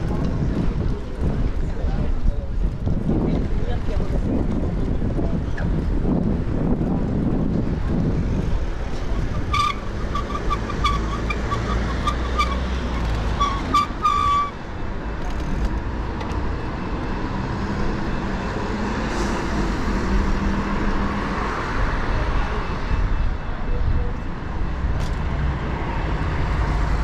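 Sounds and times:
street traffic: 0.0s - 27.0s
wind on microphone: 0.0s - 27.0s
short high-pitched squeaks: 9.6s - 14.6s.

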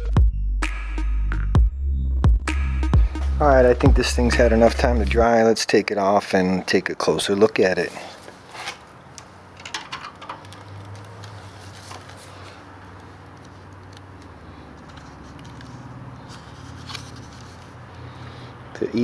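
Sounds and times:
steady low hum: 2.3s - 5.3s.

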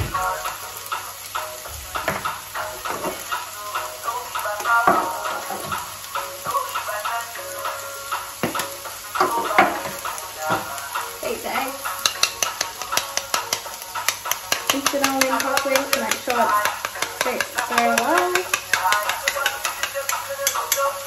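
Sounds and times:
fork clicking against ceramic bowl: 12.0s - 21.0s.

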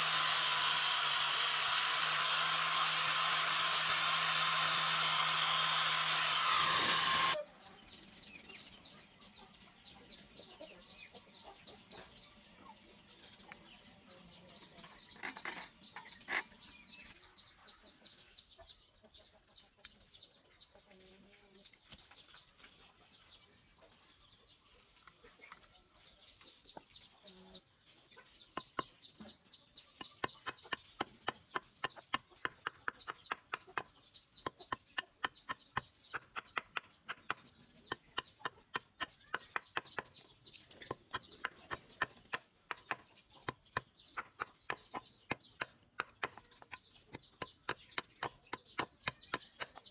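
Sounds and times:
hand saw cutting wood: 0.0s - 7.4s.

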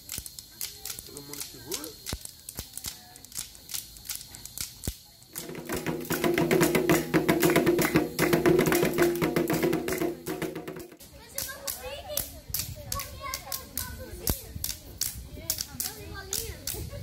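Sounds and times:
drums beaten with sticks: 5.3s - 11.0s
wooden sticks tapping: 5.4s - 11.5s.

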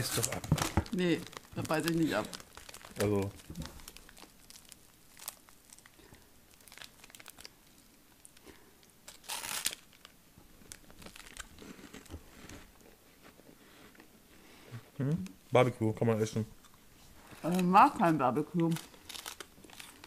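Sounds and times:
wrapper tearing: 0.0s - 7.5s, 9.1s - 12.6s, 18.5s - 20.0s
snack wrapper crinkling: 0.0s - 12.8s, 18.5s - 20.0s.

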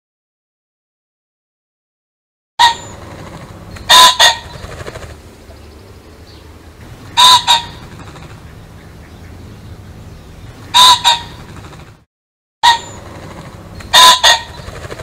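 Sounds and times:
pheasant calling: 2.6s - 11.8s, 12.6s - 15.0s
steady low hum: 2.6s - 12.0s, 12.8s - 15.0s.

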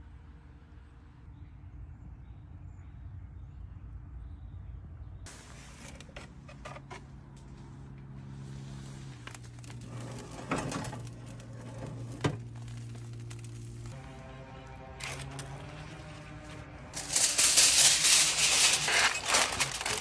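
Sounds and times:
wire racks clanking: 9.2s - 14.0s, 15.0s - 20.0s
foil pan clattering: 17.0s - 20.0s.

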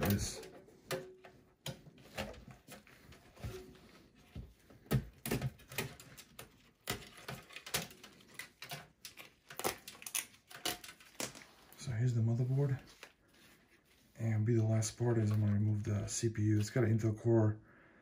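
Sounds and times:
clicks of computer parts handled: 0.0s - 3.6s, 4.8s - 11.6s.

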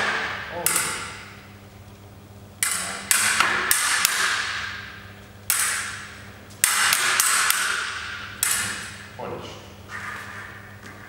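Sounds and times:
sabre blades clashing: 0.0s - 1.3s, 2.6s - 4.9s, 5.5s - 9.1s.

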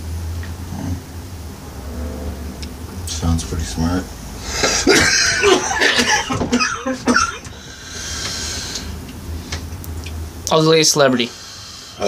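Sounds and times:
breathy exhale: 4.3s - 4.9s, 7.5s - 9.6s, 11.3s - 12.0s
man coughing hard: 4.6s - 7.5s.

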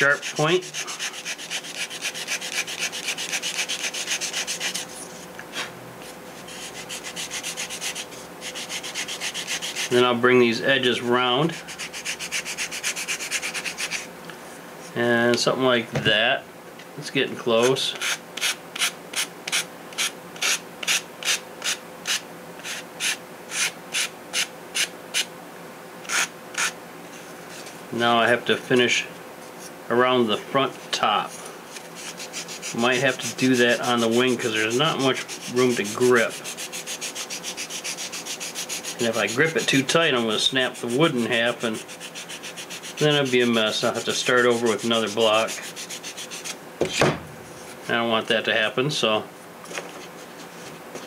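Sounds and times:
sandpaper rubbing on wood: 0.0s - 5.0s, 6.5s - 10.0s, 11.5s - 14.1s, 26.1s - 26.8s, 31.7s - 46.6s.

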